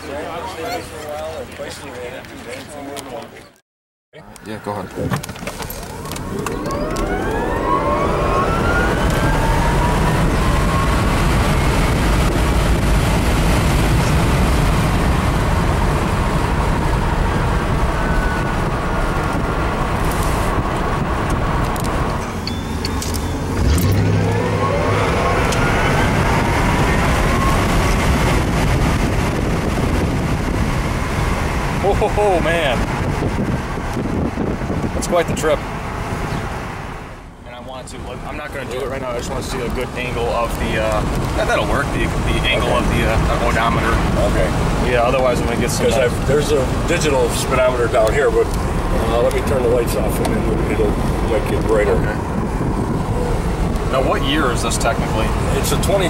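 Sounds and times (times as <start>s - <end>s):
tyre and wind noise: 4.8s - 36.7s, 38.8s - 56.0s
electric motor whining: 5.8s - 11.4s.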